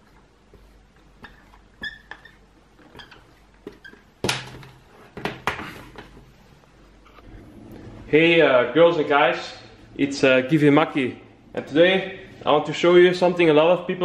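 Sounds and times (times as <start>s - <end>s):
marker squeaking on a whiteboard: 0.0s - 4.1s.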